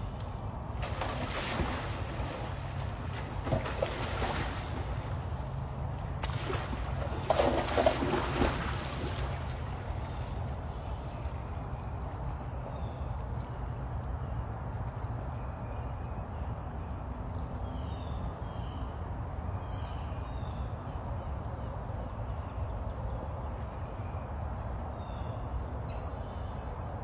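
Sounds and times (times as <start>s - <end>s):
water splashing: 0.7s - 11.6s.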